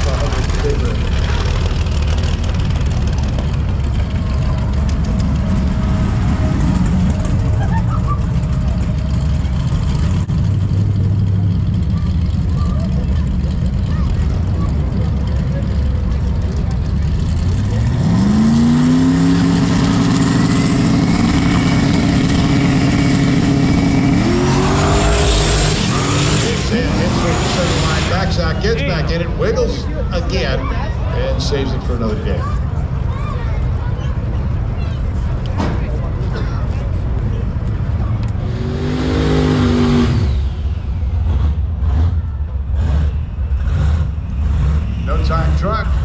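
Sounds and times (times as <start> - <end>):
race car engine idling loudly: 0.0 - 18.6
race car engine revving: 0.0 - 30.3, 37.6 - 46.0.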